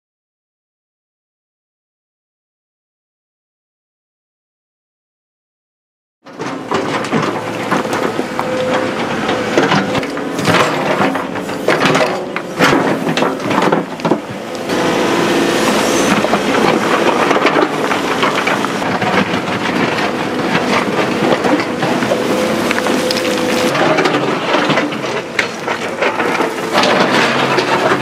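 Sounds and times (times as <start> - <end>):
excavator engine hum: 6.2 - 28.0.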